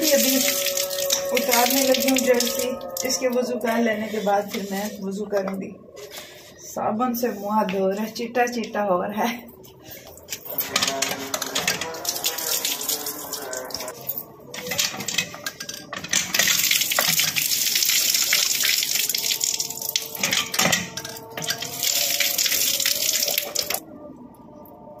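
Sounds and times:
water running and splashing: 0.0s - 3.2s, 11.0s - 14.0s, 16.0s - 23.8s.

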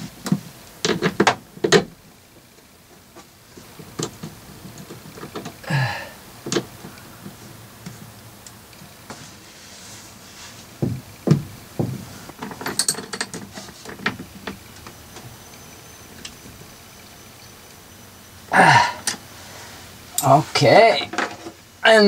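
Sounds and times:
dull thumps: 10.6s - 12.6s
knocks and clicks of cables: 10.8s - 12.6s
small metallic clinks: 12.4s - 13.5s, 20.1s - 20.4s.

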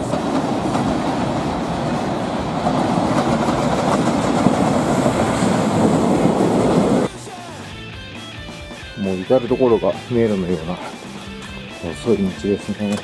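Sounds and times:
freight train wheels on rails: 0.0s - 7.1s.

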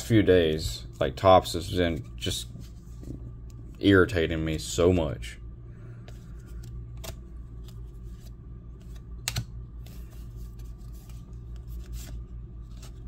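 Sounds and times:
steady low hum: 0.0s - 13.0s
cards clicking and snapping: 6.1s - 9.5s.

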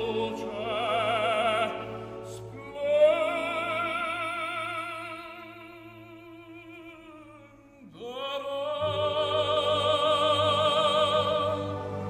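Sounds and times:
orchestra playing: 0.0s - 5.2s, 8.8s - 12.0s
tenor singing opera: 0.0s - 12.0s.

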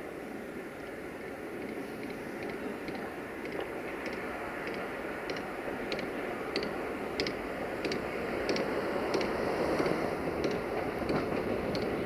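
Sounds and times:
diesel locomotive engine rumbling: 0.0s - 12.0s.

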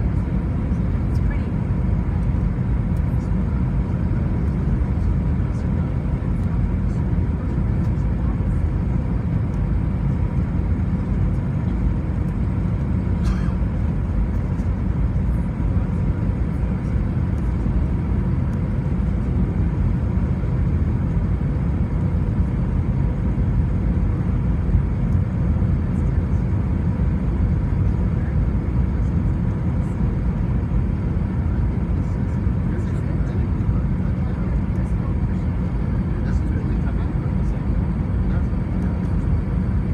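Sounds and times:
airplane cabin engine and airflow noise: 0.0s - 39.9s.

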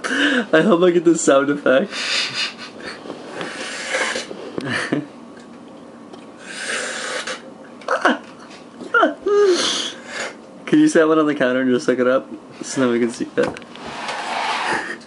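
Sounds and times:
man breathing and snorting: 1.9s - 4.9s, 6.4s - 7.5s.

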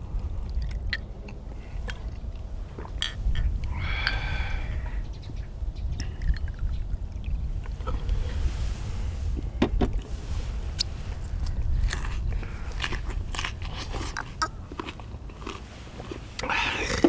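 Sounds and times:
close-up biting and chewing: 10.8s - 17.0s.

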